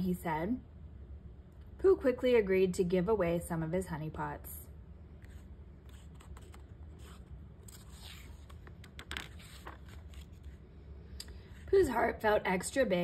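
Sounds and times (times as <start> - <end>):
book page turning: 5.2 - 10.6.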